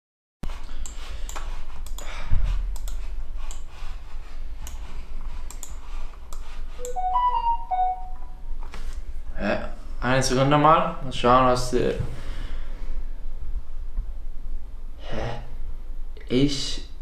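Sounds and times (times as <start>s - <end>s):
electronic notification chime: 6.8s - 8.4s.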